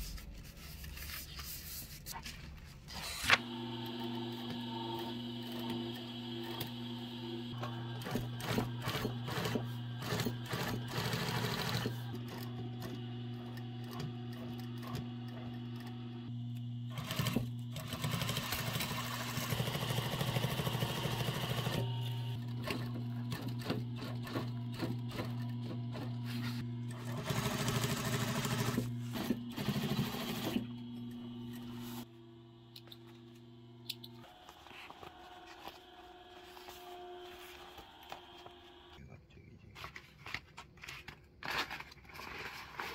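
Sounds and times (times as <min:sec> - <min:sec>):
sewing machine stitching: 0:03.0 - 0:16.3, 0:16.9 - 0:31.7
sewing machine motor humming: 0:03.4 - 0:32.1.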